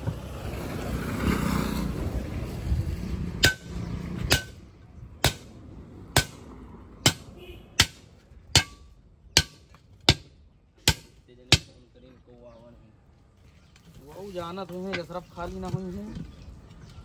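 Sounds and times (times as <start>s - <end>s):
hammer striking steel: 3.4s - 4.6s, 5.2s - 5.5s, 6.1s - 11.8s.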